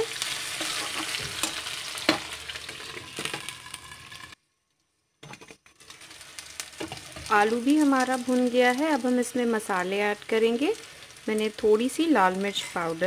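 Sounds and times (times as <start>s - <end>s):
vegetables sizzling in hot oil: 0.0s - 4.4s, 5.7s - 13.0s
spatula scraping and knocking pan: 0.6s - 3.6s, 6.8s - 7.3s.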